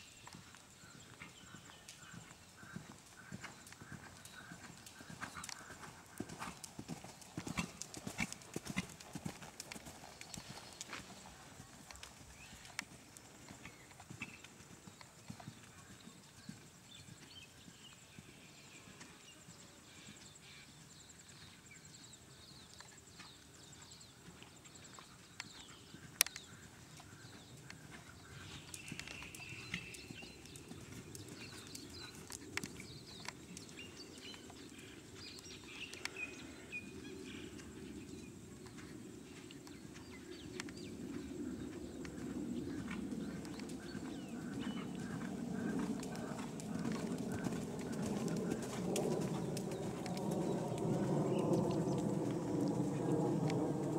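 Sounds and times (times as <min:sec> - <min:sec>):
faint birdsong: 0:00.0 - 0:53.9
horse hoofbeats on sand: 0:02.8 - 0:14.5, 0:38.7 - 0:53.6
low rumble: 0:45.9 - 0:53.9.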